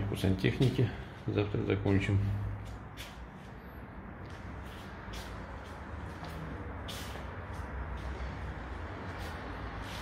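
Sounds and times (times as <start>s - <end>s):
soft footsteps: 0.2s - 10.0s.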